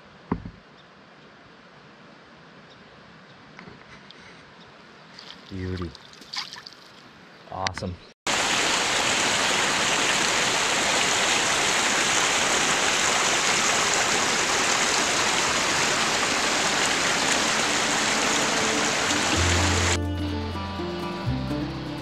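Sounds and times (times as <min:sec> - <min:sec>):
water rushing over rocks: 0:08.3 - 0:20.0.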